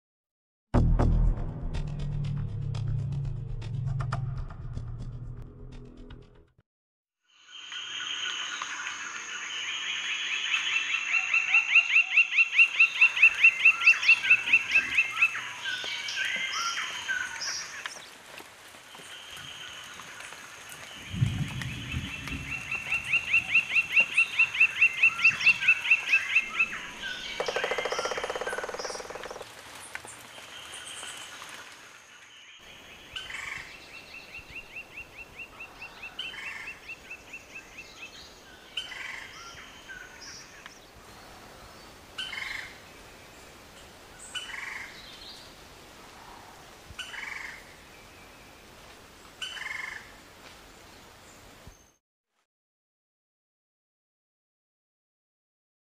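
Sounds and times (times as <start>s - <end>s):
woodpecker laughing call: 27.4s - 29.4s.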